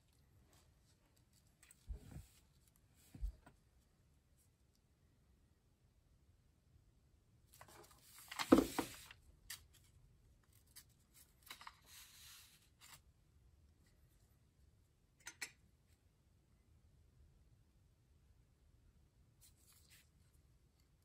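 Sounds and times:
paper rustling and sliding: 0:07.6 - 0:09.2, 0:10.6 - 0:13.0.

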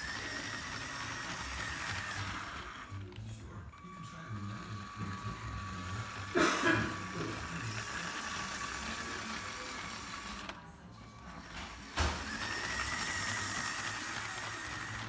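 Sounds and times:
toy train motor whirring: 0:00.0 - 0:15.0
toy train rattle: 0:00.0 - 0:15.0.

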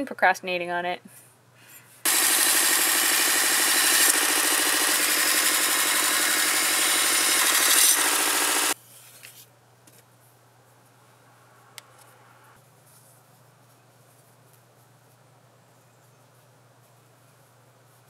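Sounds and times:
belt grinder grinding blade: 0:02.1 - 0:08.8.

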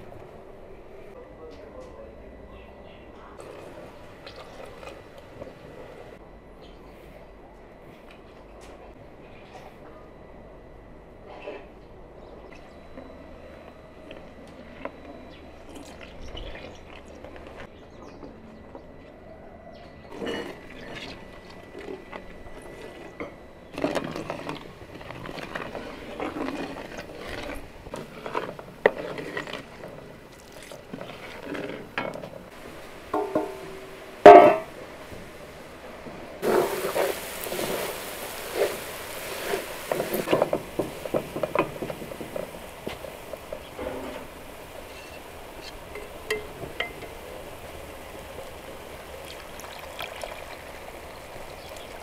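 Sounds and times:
wooden spoon scraping pot: 0:20.1 - 0:34.7, 0:36.4 - 0:47.2
steady sizzling hiss: 0:20.1 - 0:52.0.

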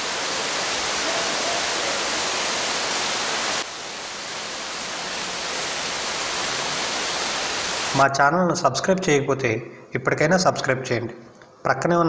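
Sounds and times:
heavy rain on palm leaves: 0:00.0 - 0:08.0.

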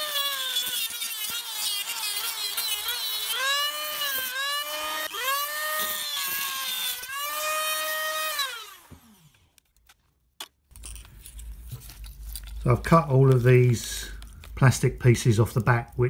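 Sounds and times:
rotary tool cutting plastic: 0:00.0 - 0:10.0.

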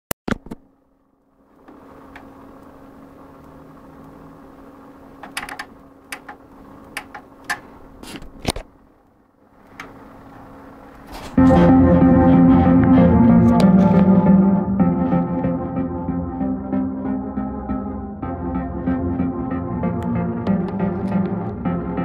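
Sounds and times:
low steady hum: 0:00.6 - 0:22.0.

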